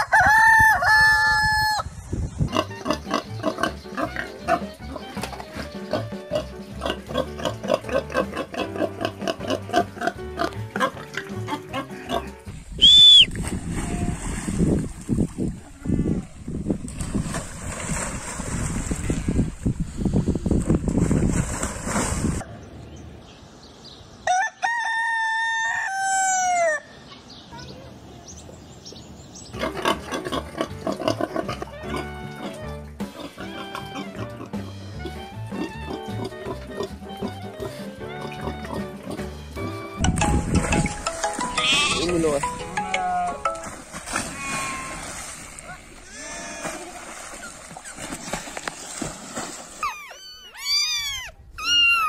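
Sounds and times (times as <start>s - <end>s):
rooster crowing: 0.0s - 1.9s, 24.2s - 26.9s
wind on microphone: 0.0s - 3.0s, 12.5s - 22.5s, 40.0s - 41.1s
piglets grunting and squealing: 2.5s - 5.0s, 5.9s - 12.4s, 29.6s - 39.2s, 46.0s - 47.0s, 49.8s - 52.0s
background music: 2.5s - 12.7s, 29.6s - 44.0s
water splashing: 12.5s - 22.5s, 38.2s - 51.4s
high-pitched whistle: 12.8s - 13.3s.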